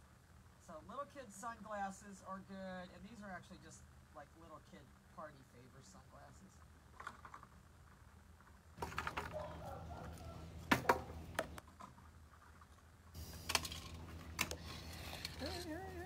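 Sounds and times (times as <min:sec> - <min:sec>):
rustling: 0:06.4 - 0:16.0.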